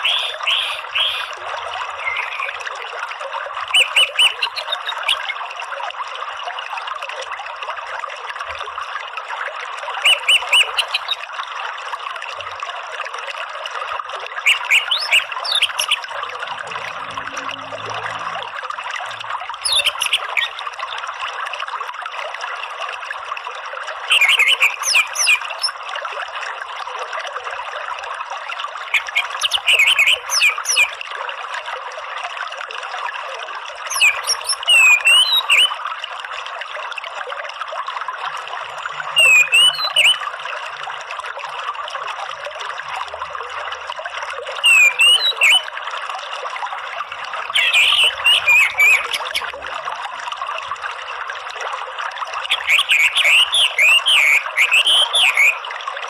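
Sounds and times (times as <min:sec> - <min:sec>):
bird high chirping calls: 0:00.0 - 0:02.6, 0:03.8 - 0:05.3, 0:10.1 - 0:11.2, 0:14.5 - 0:16.0, 0:19.6 - 0:20.6, 0:24.1 - 0:25.7, 0:29.0 - 0:30.9, 0:33.9 - 0:35.7, 0:39.2 - 0:40.2, 0:44.6 - 0:45.6, 0:47.6 - 0:49.5, 0:52.5 - 0:55.6
flowing stream water: 0:00.0 - 0:56.0.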